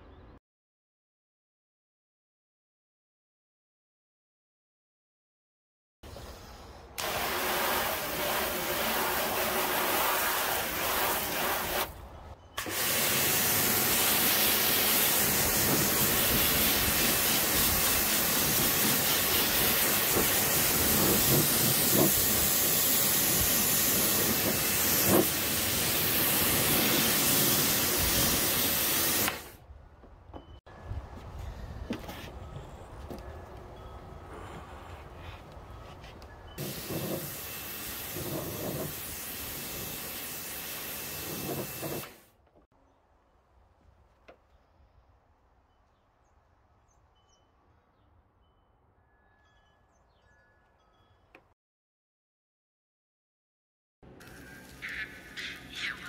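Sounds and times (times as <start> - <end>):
pressure washer spray hissing: 7.0 - 11.9, 12.6 - 29.5, 36.6 - 42.2.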